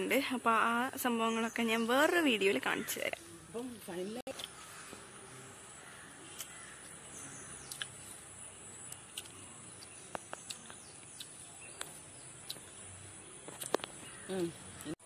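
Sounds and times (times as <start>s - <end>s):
bird chirps: 3.9s - 15.0s.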